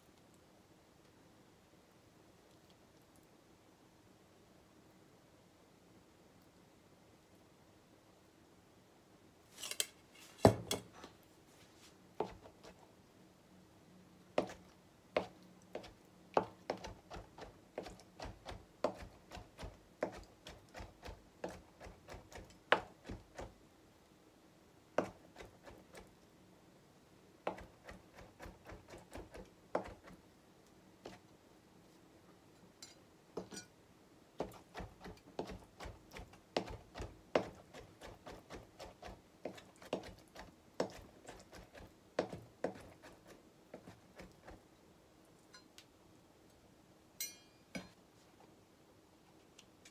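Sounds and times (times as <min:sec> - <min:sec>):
knife chopping on cutting board: 0:34.4 - 0:44.0.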